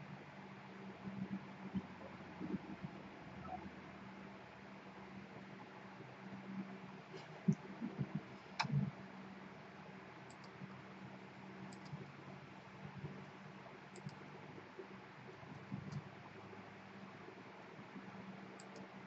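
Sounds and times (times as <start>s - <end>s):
steady low hum: 0.0s - 19.0s
faint high ticks: 10.3s - 10.6s, 11.7s - 12.0s, 13.9s - 14.2s, 18.6s - 18.9s.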